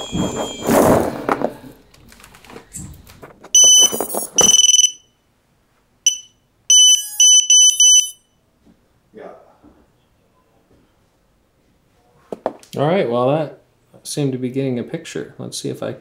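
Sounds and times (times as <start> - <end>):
high-pitched buzzer beeping: 3.6 - 5.1, 6.1 - 8.3.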